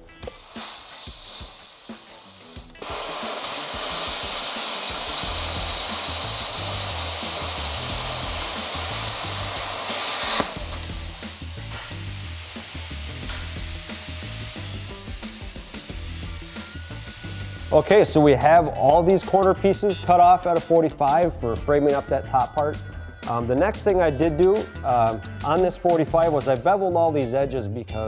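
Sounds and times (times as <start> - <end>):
plasma cutter hissing: 0.0 - 18.1.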